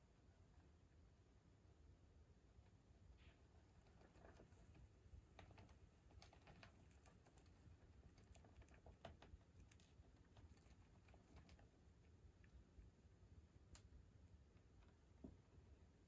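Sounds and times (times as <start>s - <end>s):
hamster nibbling clicks: 3.6s - 12.7s.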